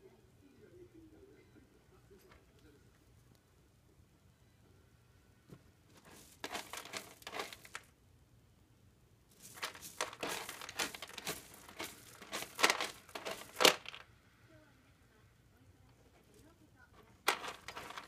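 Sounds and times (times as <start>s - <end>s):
kitten scratching in cat litter: 5.9s - 7.9s, 9.3s - 14.0s, 16.2s - 18.0s.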